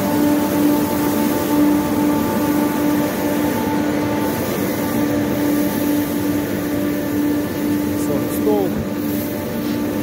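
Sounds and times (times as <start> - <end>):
constant machine hum: 0.0 - 10.0.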